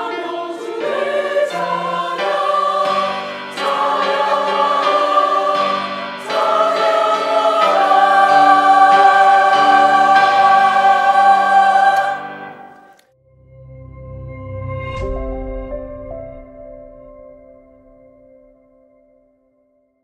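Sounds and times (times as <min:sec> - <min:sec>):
women's choir singing hymn: 0:00.0 - 0:13.0.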